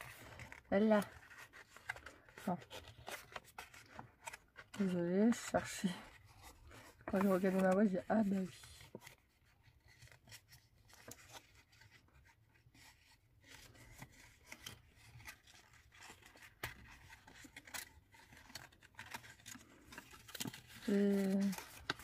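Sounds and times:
paper card rustling and clicking: 0.0 - 22.0.

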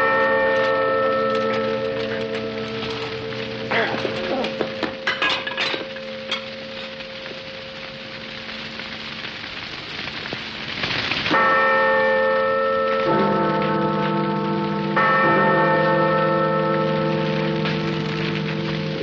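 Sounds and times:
church bells ringing: 0.0 - 9.0, 11.2 - 19.0
fire crackling: 0.0 - 19.0
sharp metal clanks: 4.6 - 6.9.

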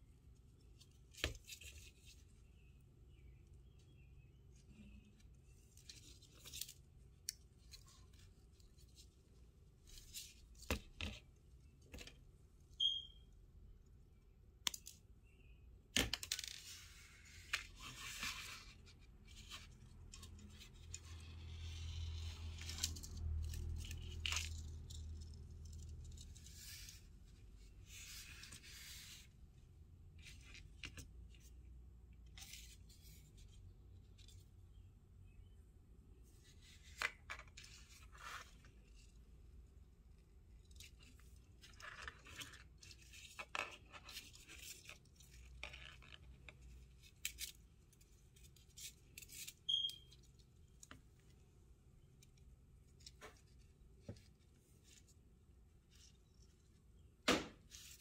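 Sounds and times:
fishing line rustling and sliding: 16.5 - 29.5, 36.2 - 39.2.

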